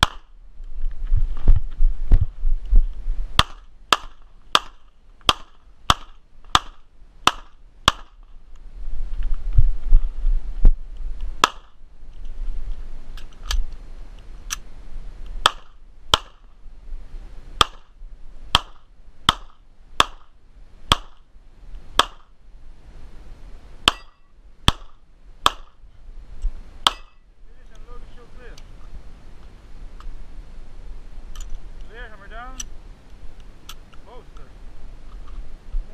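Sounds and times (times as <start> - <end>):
pistol shots: 0.0 - 0.3, 3.4 - 8.2, 11.4 - 11.8, 15.4 - 16.5, 17.6 - 17.9, 18.5 - 20.3, 23.9 - 25.8, 26.8 - 27.2.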